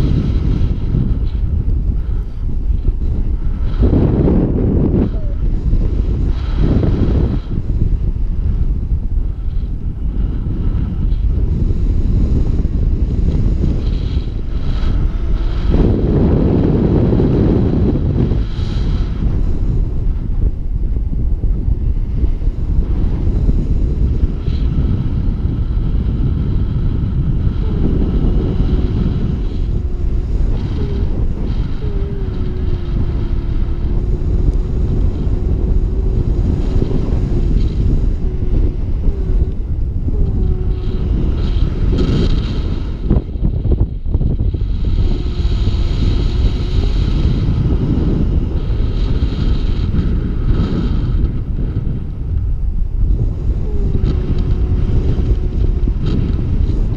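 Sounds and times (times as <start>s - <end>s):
wind buffeting microphone: 0.0s - 56.9s
faint wavering tone: 27.6s - 44.0s.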